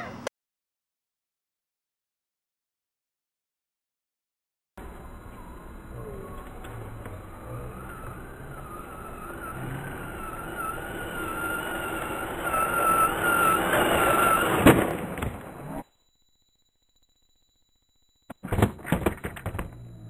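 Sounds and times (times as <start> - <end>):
toy truck motor whining: 4.9 - 15.8
toy truck crashing into camera: 18.4 - 19.8.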